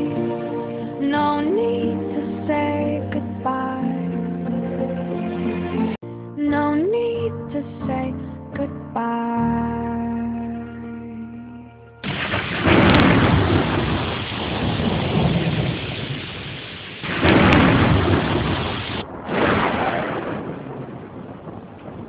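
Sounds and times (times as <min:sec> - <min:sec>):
heavy rain hiss: 0:12.0 - 0:19.8
thunder rumble: 0:12.0 - 0:22.0.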